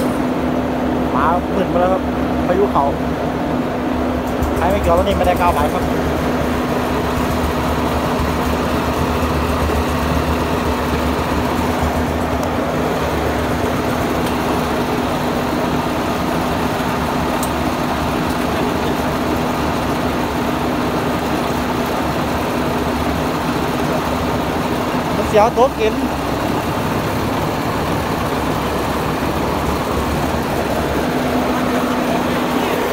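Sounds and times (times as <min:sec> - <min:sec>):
diesel engine running: 0:00.0 - 0:32.9.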